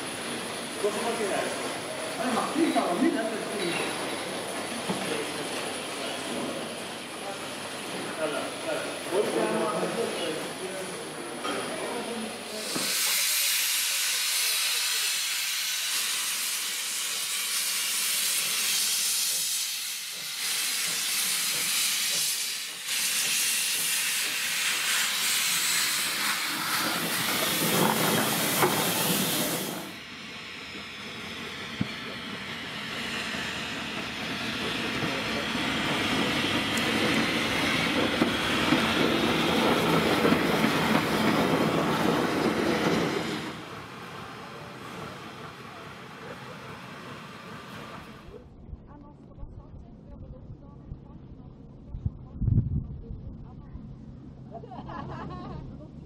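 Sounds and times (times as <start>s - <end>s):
loud steam hiss: 0.0s - 48.3s
locomotive rolling over rails: 25.6s - 30.0s, 30.7s - 48.4s.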